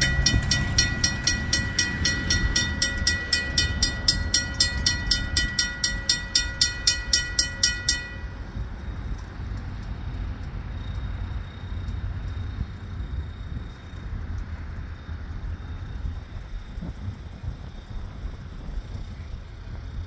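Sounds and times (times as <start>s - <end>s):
crossing bell ringing: 0.0s - 9.3s
train rumbling: 0.0s - 20.0s.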